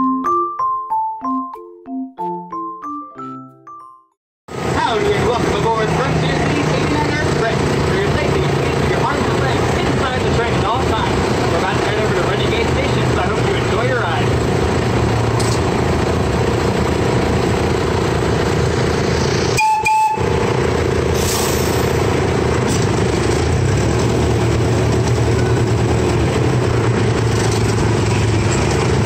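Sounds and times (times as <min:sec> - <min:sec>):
brief high tone: 0:19.6 - 0:20.3
miniature train engine hum: 0:22.8 - 0:29.0.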